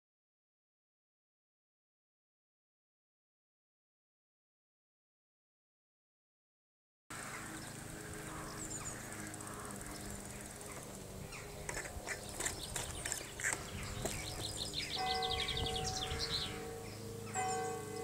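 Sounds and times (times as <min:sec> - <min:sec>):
birds chirping: 0:07.1 - 0:18.0
bike clicks and rattles: 0:08.9 - 0:16.1.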